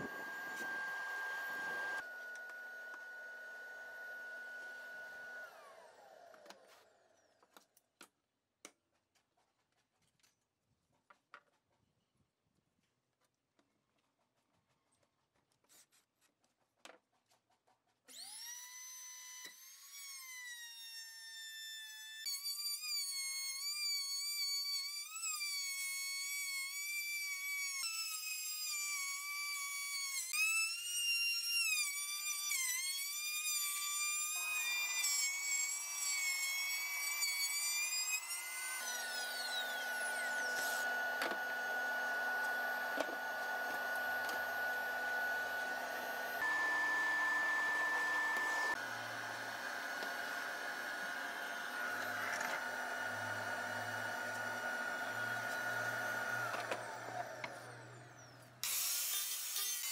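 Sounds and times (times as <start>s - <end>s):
vacuum cleaner running: 0.0s - 6.8s, 34.4s - 58.4s
trim router whining: 0.0s - 7.0s, 32.0s - 59.9s.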